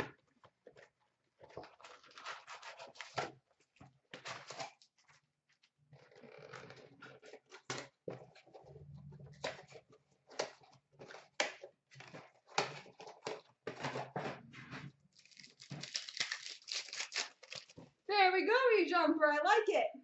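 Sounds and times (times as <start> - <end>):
plastic wrappers crinkling: 15.1 - 17.8
packs being torn open: 15.2 - 17.8.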